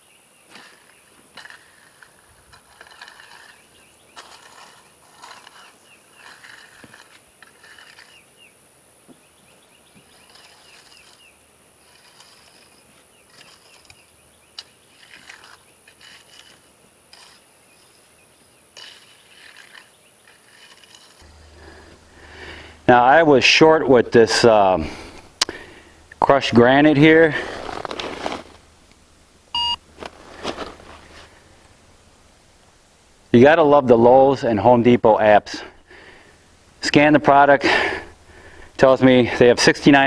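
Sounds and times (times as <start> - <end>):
birds chirping: 0.0 - 1.4, 3.0 - 15.9, 16.7 - 20.5
rake scraping gravel: 0.0 - 32.8, 33.4 - 40.0.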